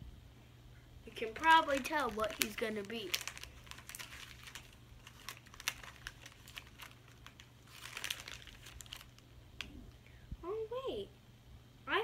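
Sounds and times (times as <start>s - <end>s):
plastic packaging crinkling: 1.1s - 10.0s.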